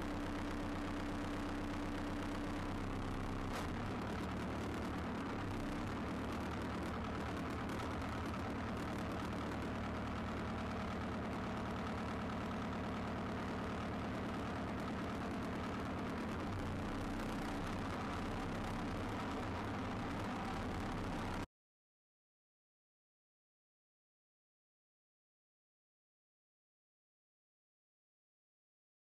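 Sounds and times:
tractor engine running: 0:00.0 - 0:21.5.

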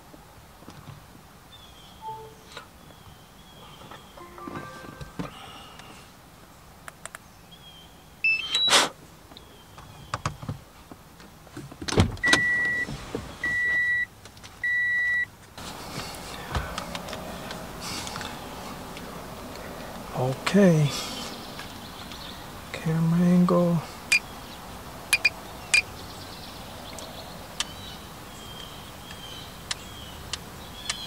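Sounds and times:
steady background noise: 0:00.0 - 0:31.0
electronic beeps: 0:02.0 - 0:02.6
rising high tones: 0:02.0 - 0:02.7, 0:04.2 - 0:05.6.

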